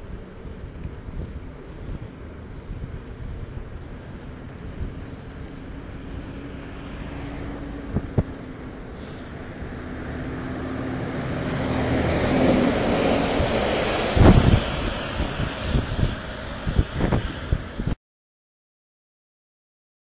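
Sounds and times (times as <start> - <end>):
tanker lorry passing: 0.0 - 18.0
wind buffeting microphone: 0.0 - 18.0.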